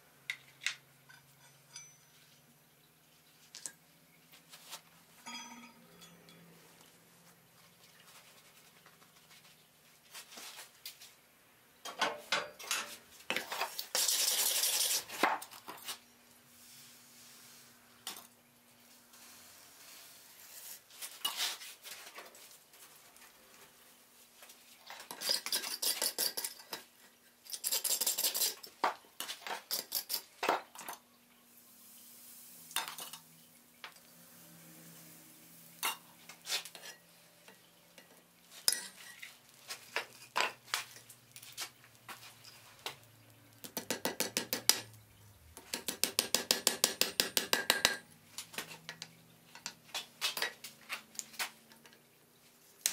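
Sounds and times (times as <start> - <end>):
hammer striking iron on anvil: 5.3 - 6.4.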